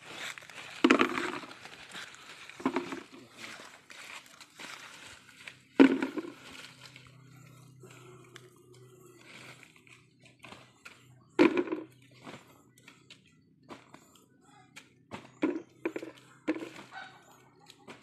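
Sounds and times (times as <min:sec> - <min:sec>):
hands scrabbling through dry leaves: 0:00.0 - 0:07.1.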